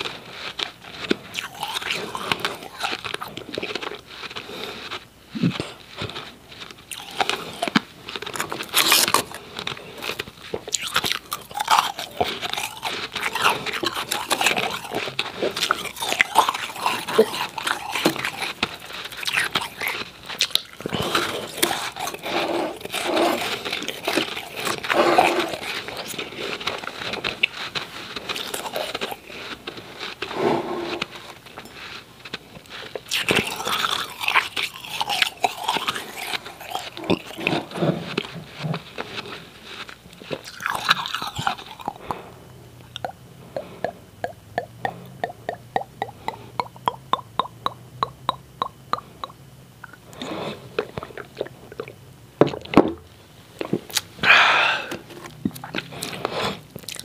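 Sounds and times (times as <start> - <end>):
chewing ice crunches: 0.0 - 52.7, 53.6 - 57.0
sharp mouth clicks: 40.8 - 52.0.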